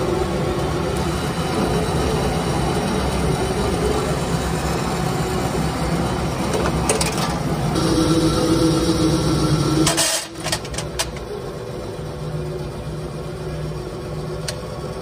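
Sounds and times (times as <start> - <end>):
press motor humming: 0.0 - 15.0.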